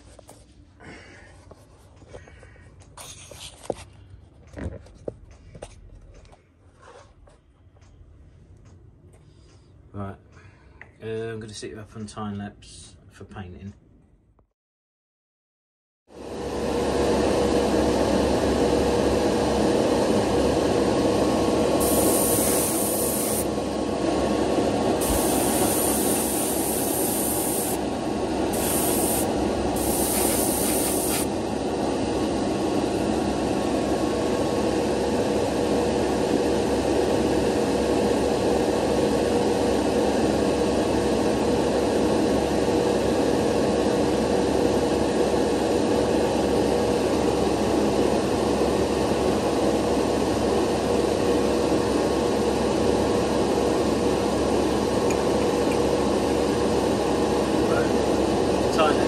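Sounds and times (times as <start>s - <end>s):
extraction fan humming: 16.2s - 59.0s
paint spray hissing: 21.8s - 23.5s, 25.0s - 27.8s, 28.5s - 31.3s.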